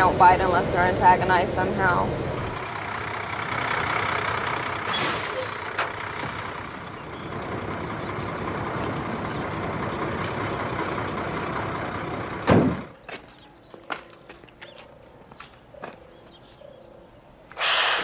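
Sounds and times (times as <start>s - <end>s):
diesel engine running: 0.0s - 13.0s
loud sudden thump: 12.4s - 12.9s.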